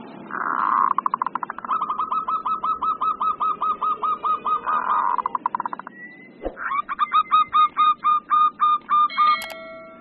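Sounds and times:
dove cooing fast: 0.3 - 9.0
buzzy bird trill and clicks: 0.6 - 2.0, 5.0 - 5.9.

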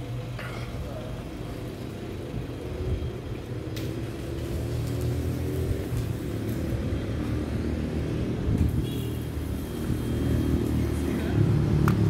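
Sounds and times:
vehicle engine running: 0.0 - 8.6
street noise: 0.0 - 12.0.

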